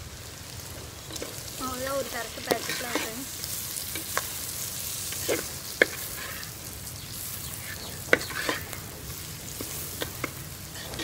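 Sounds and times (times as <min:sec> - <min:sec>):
food sizzling: 0:00.0 - 0:11.0
metal ladle scraping pot: 0:07.8 - 0:08.8, 0:10.0 - 0:11.0.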